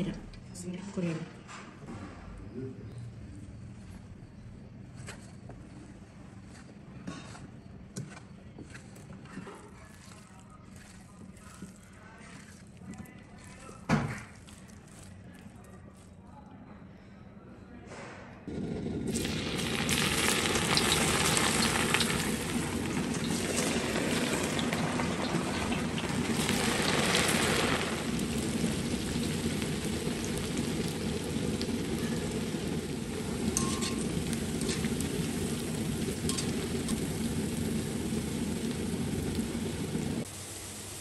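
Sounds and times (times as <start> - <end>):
food sizzling in hot oil: 18.8 - 41.0.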